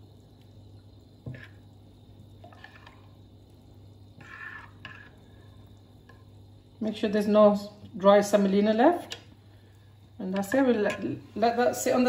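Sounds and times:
liquid sloshing in a bowl: 0:02.4 - 0:03.2.

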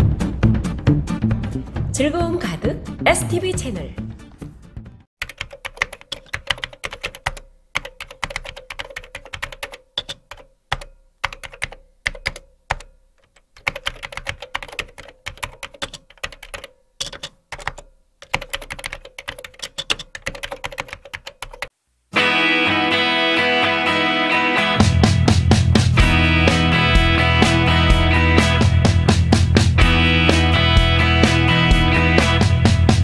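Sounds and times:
keyboard typing clicks: 0:05.2 - 0:21.7.

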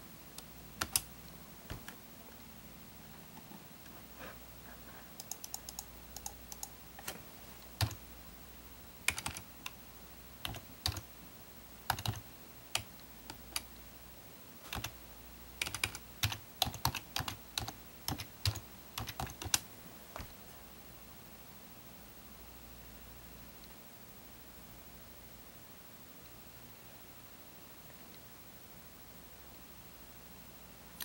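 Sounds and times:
keyboard typing: 0:00.8 - 0:01.1, 0:05.2 - 0:07.2, 0:07.8 - 0:08.0, 0:09.0 - 0:09.8, 0:10.4 - 0:11.1, 0:11.9 - 0:13.7, 0:14.7 - 0:15.0, 0:15.6 - 0:19.6.

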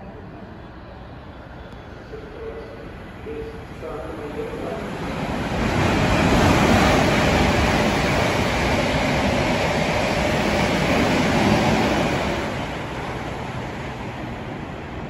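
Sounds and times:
train wheels on rail: 0:04.2 - 0:15.0.

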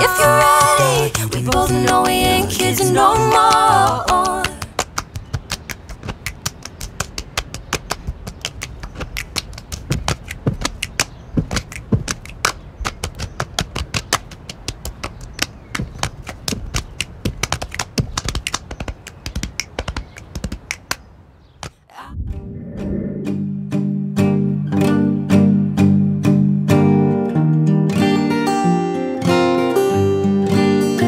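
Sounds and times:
acoustic guitar music: 0:23.2 - 0:31.0.

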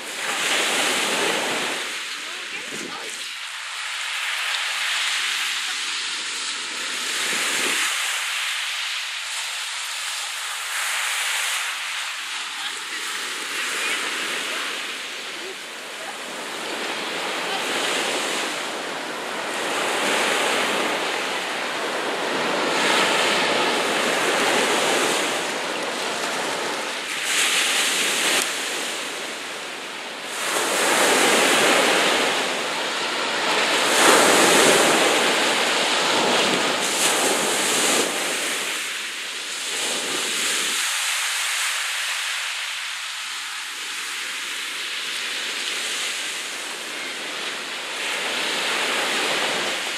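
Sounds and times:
sea waves washing: 0:00.0 - 0:49.9.

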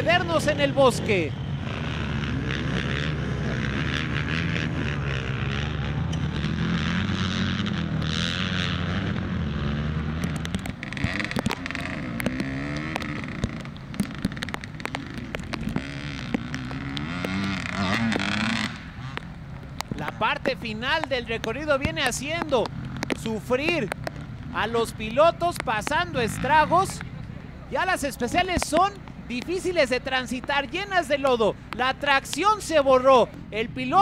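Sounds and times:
dirt bike engines revving: 0:00.0 - 0:34.0
sharp clicks and knocks: 0:10.2 - 0:24.5.

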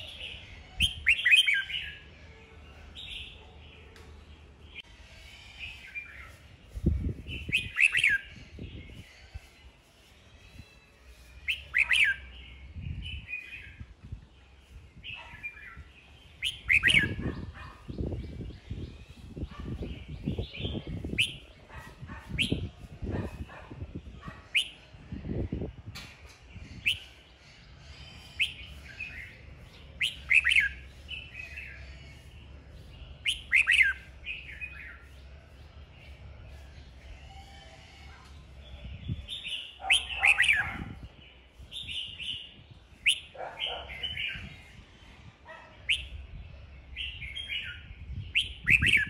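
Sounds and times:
bird singing sharp phrases: 0:00.0 - 0:49.0
quiet bird twittering: 0:26.3 - 0:49.0.

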